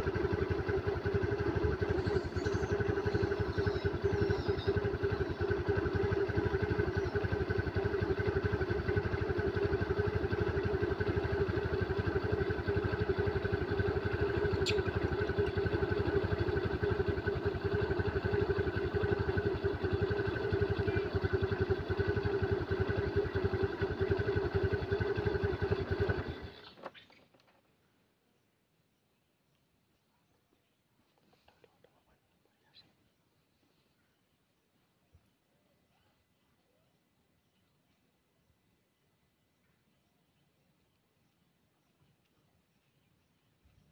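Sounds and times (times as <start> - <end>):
vehicle engine idling: 0.0 - 27.0.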